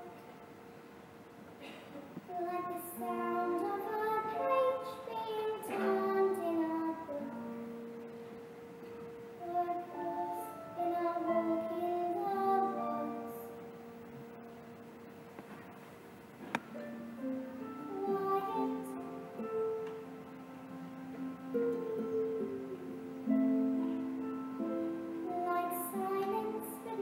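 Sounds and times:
child singing: 0:02.3 - 0:07.7, 0:09.4 - 0:13.5, 0:17.8 - 0:19.6, 0:24.6 - 0:27.0.

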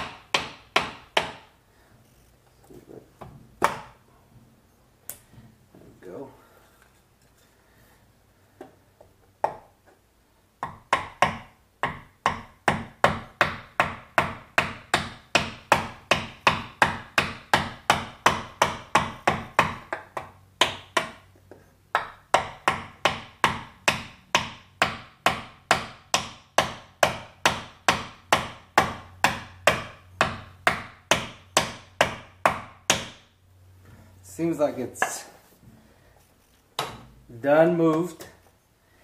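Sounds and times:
hammer striking wooden block: 0:00.0 - 0:01.5, 0:03.2 - 0:04.0, 0:09.4 - 0:09.7, 0:10.6 - 0:21.3, 0:21.9 - 0:33.4.

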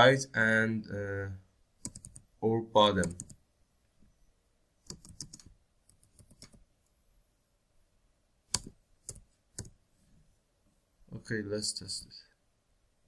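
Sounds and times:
computer keyboard typing: 0:01.8 - 0:02.3, 0:03.0 - 0:03.4, 0:04.9 - 0:06.6, 0:08.5 - 0:09.8.

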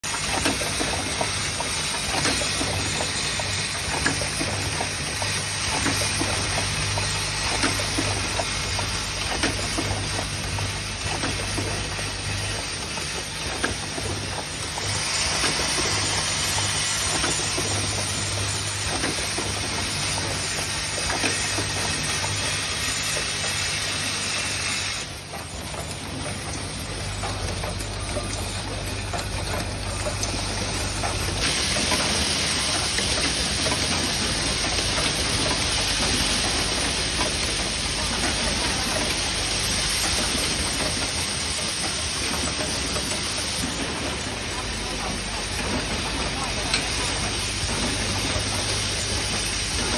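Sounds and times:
machines hissing and clicking: 0:00.0 - 0:49.9.

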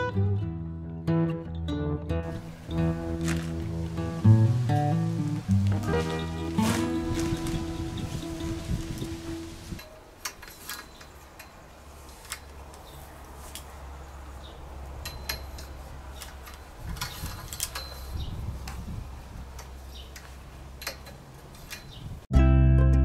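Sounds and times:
light clinks: 0:15.0 - 0:15.8, 0:16.4 - 0:18.3.

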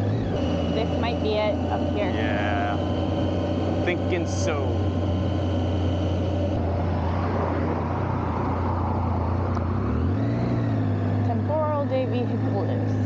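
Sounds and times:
motorcycle engine running: 0:00.0 - 0:13.0
road noise: 0:00.0 - 0:13.0.

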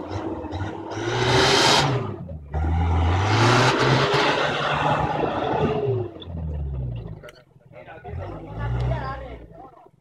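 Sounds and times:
engine revving hard: 0:00.0 - 0:06.1.

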